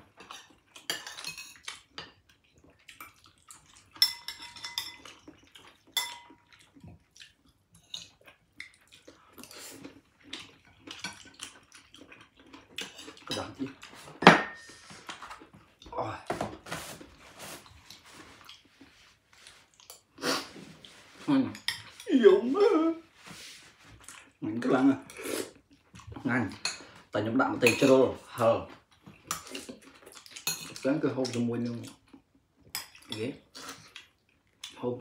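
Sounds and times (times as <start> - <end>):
spoon and dishes clinking: 0.2 - 2.2, 4.0 - 5.3, 5.9 - 6.4, 14.2 - 14.8, 21.5 - 22.1, 30.4 - 30.9.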